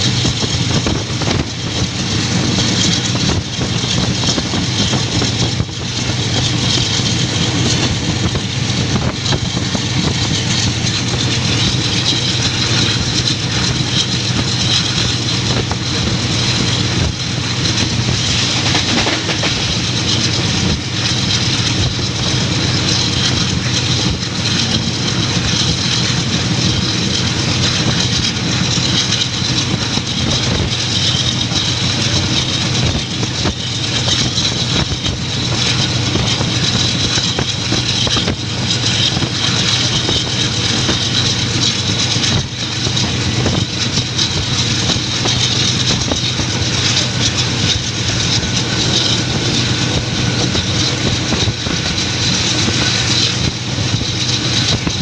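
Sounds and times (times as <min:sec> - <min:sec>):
train wheels rumbling on track: 0:00.0 - 0:55.0
rush of air: 0:14.5 - 0:28.7.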